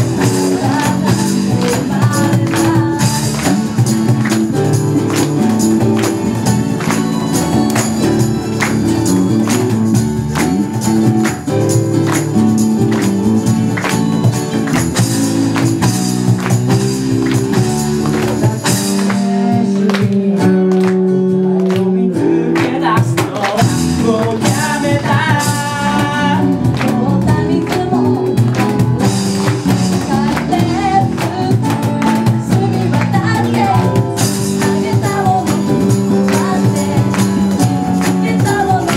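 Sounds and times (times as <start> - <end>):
male and female singing: 0.0 - 4.4, 18.1 - 28.7, 29.8 - 38.9
drums and cymbals: 0.0 - 19.7, 22.8 - 38.9
acoustic guitar: 0.0 - 38.9
piano: 0.0 - 38.9.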